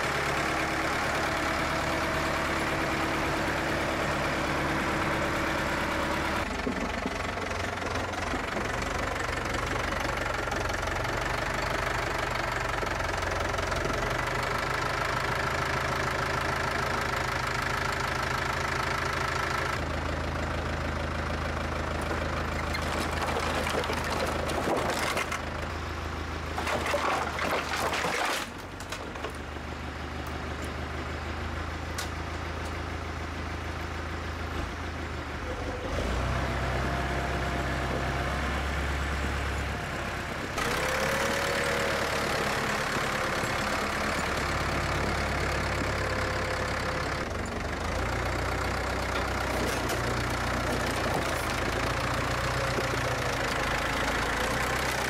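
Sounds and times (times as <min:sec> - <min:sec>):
tractor engine running: 0:00.0 - 0:55.0
wood clattering: 0:22.1 - 0:25.4, 0:49.4 - 0:53.6.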